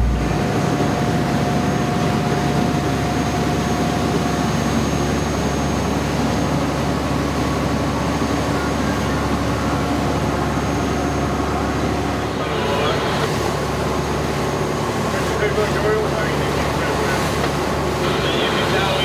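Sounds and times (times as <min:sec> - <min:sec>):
low hum: 0:00.0 - 0:03.1
boat engine running: 0:00.0 - 0:19.0
wind: 0:00.0 - 0:19.0.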